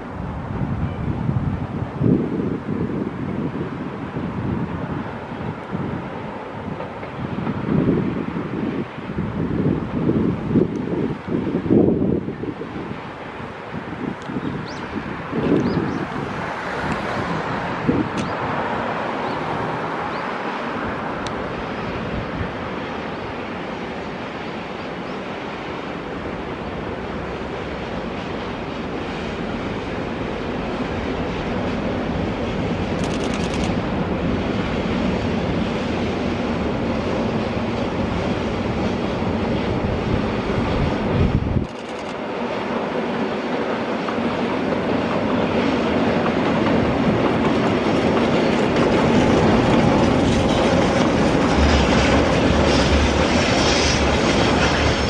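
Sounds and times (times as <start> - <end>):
wind noise on microphone: 0.0 - 19.2, 20.7 - 23.3, 31.6 - 42.3, 45.4 - 55.0
low locomotive hum: 0.0 - 55.0
train wheels rumbling on rails: 0.0 - 55.0.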